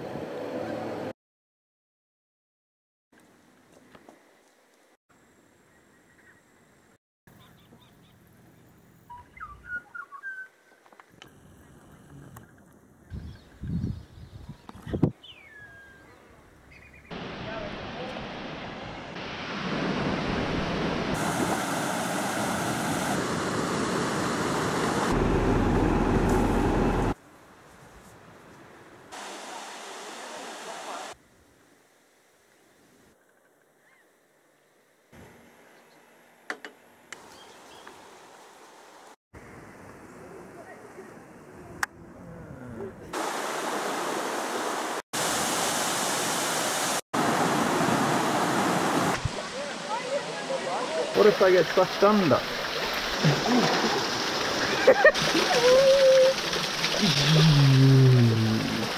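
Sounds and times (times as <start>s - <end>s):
wind on microphone: 13.1s - 15.2s
falling water rushing: 17.1s - 27.2s, 29.1s - 31.2s, 43.1s - 58.9s.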